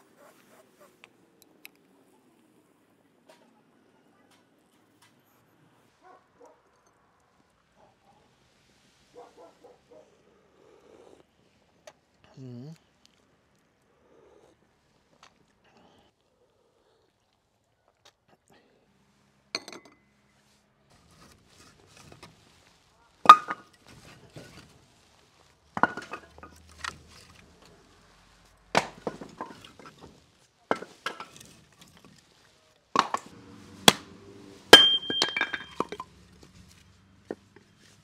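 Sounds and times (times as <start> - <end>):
wooden logs knocking together: 23.2 - 24.7, 25.7 - 27.8, 28.6 - 32.3, 32.9 - 34.1, 34.7 - 37.8.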